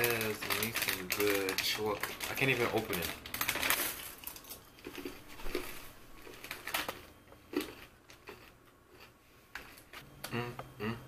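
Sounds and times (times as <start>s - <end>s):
plastic wrapper crinkling: 0.0s - 7.8s.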